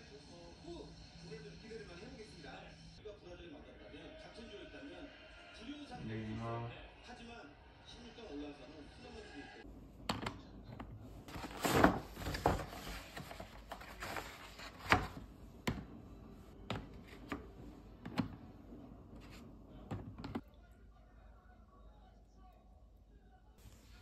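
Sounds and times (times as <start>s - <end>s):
eggs tapping into plastic tray: 10.0s - 11.0s.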